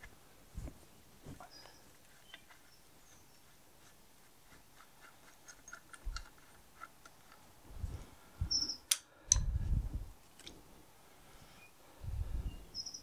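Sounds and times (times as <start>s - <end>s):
small metallic clicks and taps: 5.0s - 7.4s.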